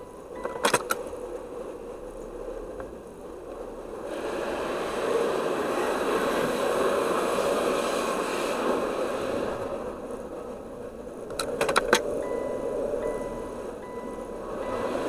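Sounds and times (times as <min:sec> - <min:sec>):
water jets hissing under car: 0:03.9 - 0:10.1.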